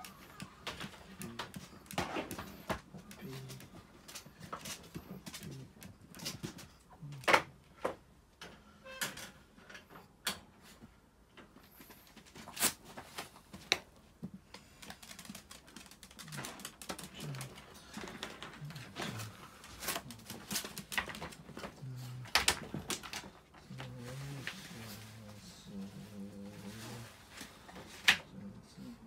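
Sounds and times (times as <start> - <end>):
rustling: 11.6 - 28.3.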